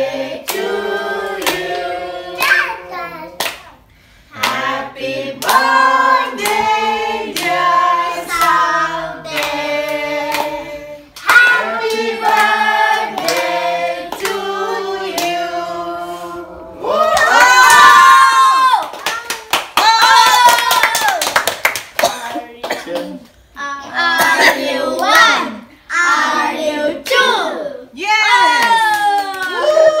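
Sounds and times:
group singing a celebration song: 0.0s - 17.1s, 23.9s - 27.6s
people clapping in time: 18.7s - 22.3s, 28.5s - 29.9s.

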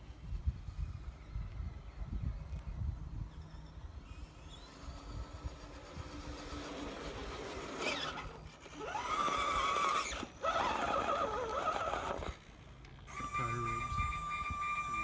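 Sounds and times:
electric motor whining: 3.9s - 15.0s.

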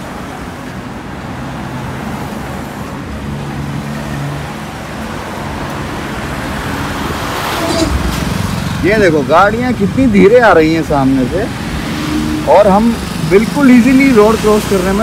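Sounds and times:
road traffic: 0.0s - 15.0s
car passing by: 1.2s - 9.4s, 10.8s - 15.0s.

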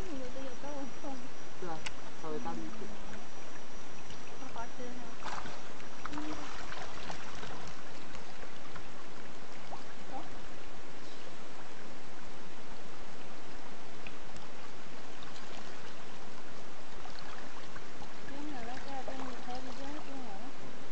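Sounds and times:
fish thrashing and splashing: 5.2s - 10.1s.

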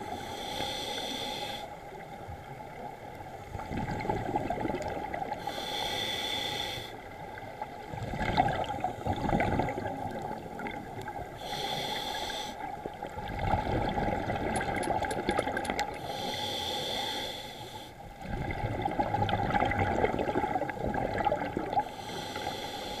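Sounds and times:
regulator hissing inhalations: 0.1s - 1.8s, 5.4s - 7.0s, 11.4s - 12.7s, 16.0s - 18.0s, 21.9s - 23.0s
gurgling exhaust bubbles: 8.0s - 10.9s, 13.2s - 16.0s, 18.2s - 21.9s.

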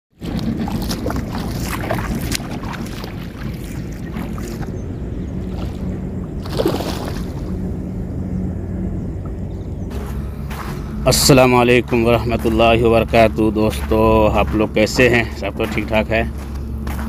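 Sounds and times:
fish splashing in water: 0.2s - 7.6s
wind rumble on microphone: 0.2s - 17.0s.

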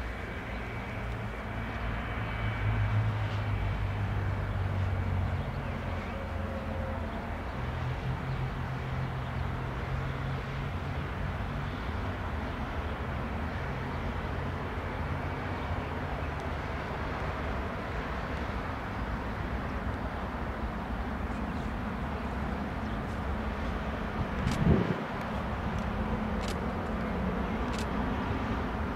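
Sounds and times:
outdoor background noise: 0.0s - 28.9s
jet engines rumbling: 13.2s - 28.9s.

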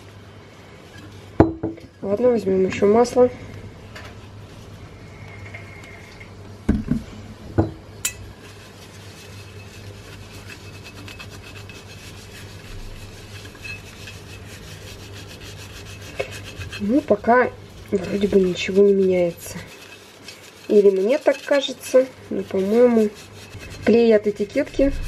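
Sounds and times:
paper towel rubbing glass jar: 8.4s - 25.0s.

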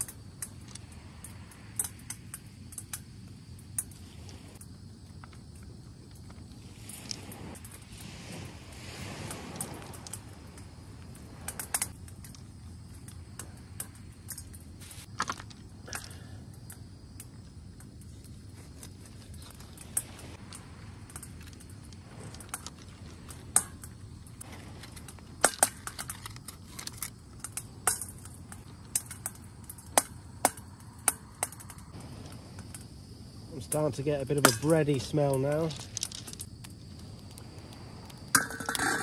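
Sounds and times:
stones popping and cracking: 8.9s - 32.8s, 34.4s - 39.0s.

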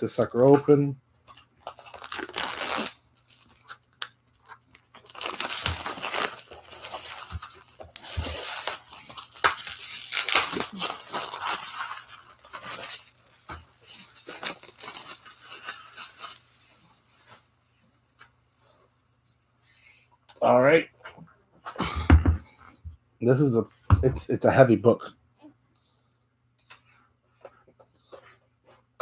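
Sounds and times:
plastic wrap crinkling and tearing: 1.6s - 17.3s.

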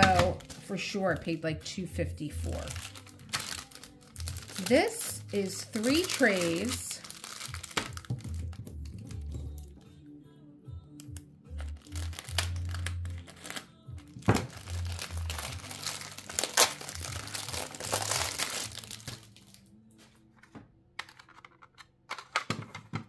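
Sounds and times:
plastic wrap crinkling and tearing: 0.0s - 1.3s, 2.4s - 9.2s, 11.6s - 19.7s.

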